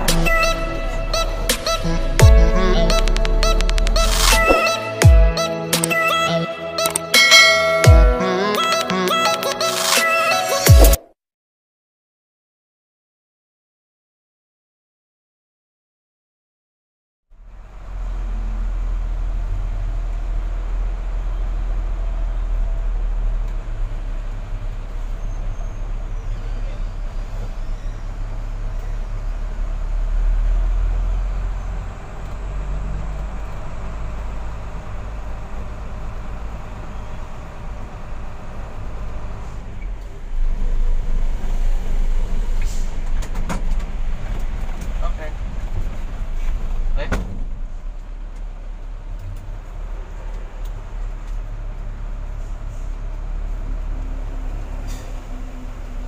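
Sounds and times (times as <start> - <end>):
truck diesel engine droning: 0.0 - 8.6, 17.3 - 56.0
sharp clicks: 2.9 - 4.7, 5.7 - 6.1, 6.8 - 7.2.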